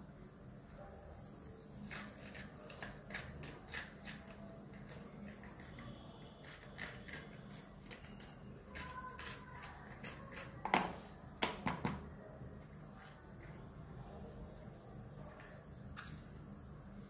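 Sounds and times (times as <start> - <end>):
knife scraping chilli seeds: 1.5 - 11.2
knocks on plastic cutting board: 10.7 - 12.0.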